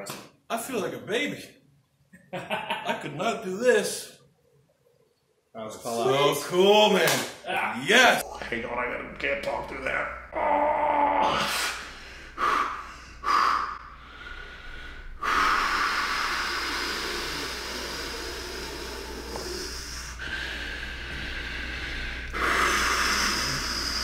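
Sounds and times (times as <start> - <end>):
man breathing hard: 11.3 - 24.0.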